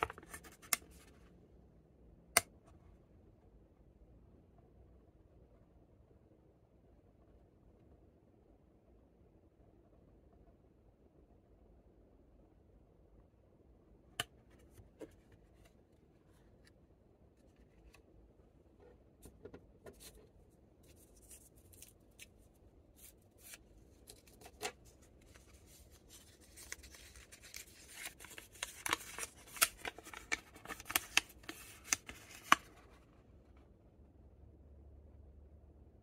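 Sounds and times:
foil wrappers crinkling: 0:25.2 - 0:32.7.

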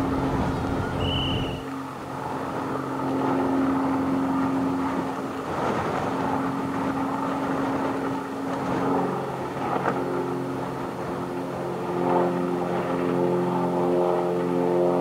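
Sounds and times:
engine droning: 0:00.0 - 0:15.0.

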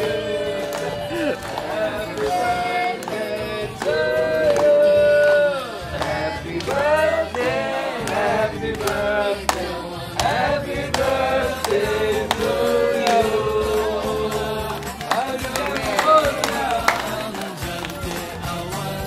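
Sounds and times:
backing music: 0:00.0 - 0:19.0
group of people singing: 0:00.0 - 0:19.0.

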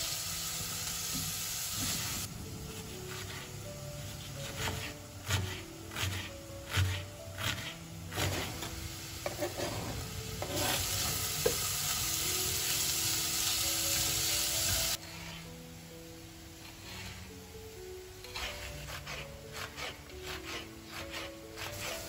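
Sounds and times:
soft background music: 0:00.0 - 0:22.0
vegetables sizzling in oil: 0:00.0 - 0:22.0
spatula stirring in pot: 0:02.8 - 0:11.1, 0:15.0 - 0:15.6, 0:16.6 - 0:17.3, 0:18.3 - 0:22.0.

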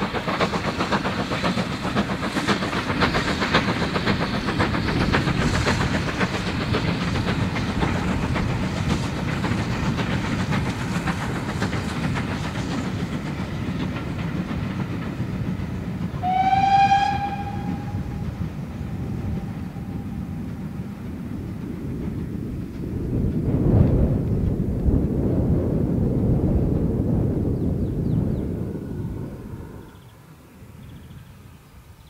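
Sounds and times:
coaches rumbling on rails: 0:00.0 - 0:32.0
steam locomotive exhaust beats: 0:00.0 - 0:32.0
steam whistle: 0:16.2 - 0:18.4.

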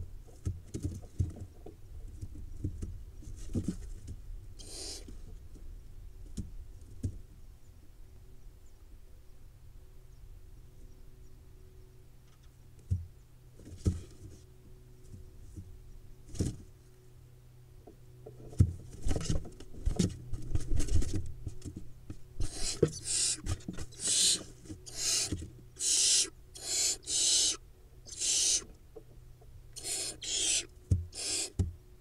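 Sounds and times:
owl chicks hissing: 0:04.6 - 0:05.2, 0:22.4 - 0:28.7, 0:29.8 - 0:31.6.

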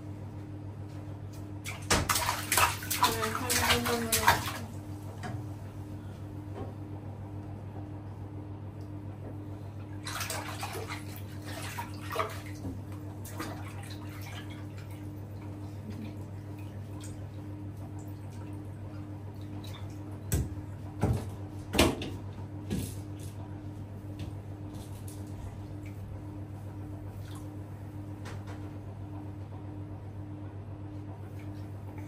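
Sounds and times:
water splashing: 0:01.6 - 0:04.8, 0:10.0 - 0:15.0.

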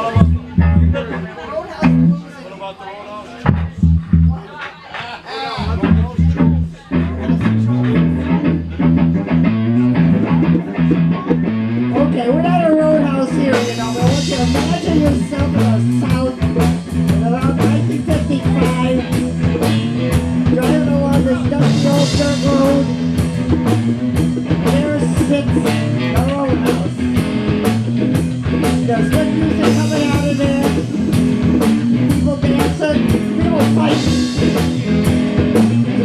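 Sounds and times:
bass line: 0:00.0 - 0:02.2, 0:03.4 - 0:04.5, 0:05.6 - 0:36.0
electric guitars: 0:05.6 - 0:36.0
drum cymbal beat: 0:13.4 - 0:36.0.

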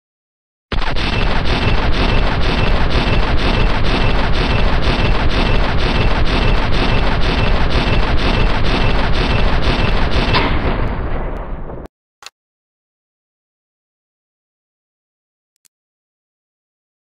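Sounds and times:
heavy machine gun firing: 0:00.7 - 0:11.9.

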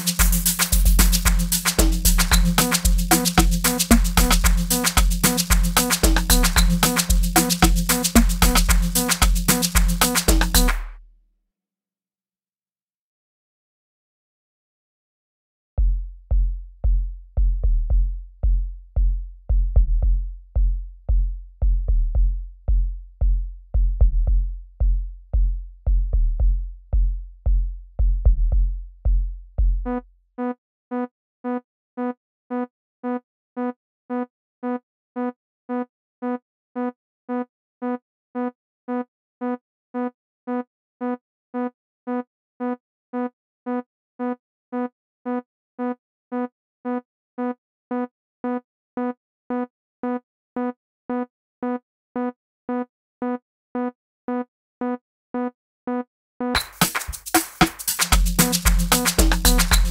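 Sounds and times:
repeating synth note: 0:00.0 - 0:10.8
clicking percussion: 0:00.0 - 0:10.9, 0:56.6 - 0:59.9
deep kick drums: 0:15.8 - 0:30.0, 0:58.2 - 0:59.9.

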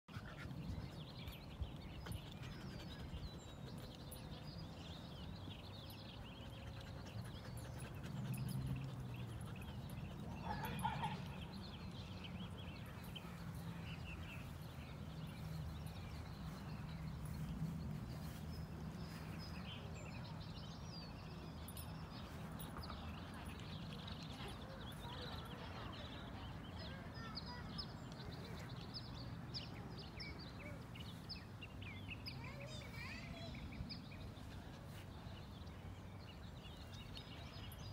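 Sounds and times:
small birds chirping: 0:00.1 - 0:37.9.

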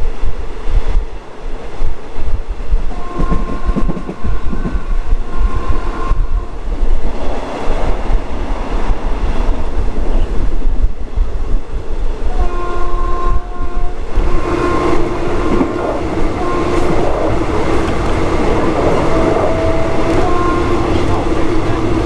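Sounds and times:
train wheels rumbling: 0:00.0 - 0:22.0
high held tone: 0:12.4 - 0:22.0.

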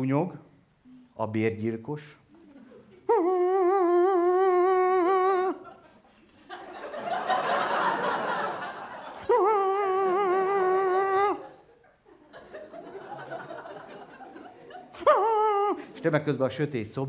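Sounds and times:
man imitating mosquito whine: 0:03.1 - 0:05.6, 0:09.3 - 0:11.4
audience laughter: 0:05.6 - 0:09.4, 0:11.3 - 0:16.4.

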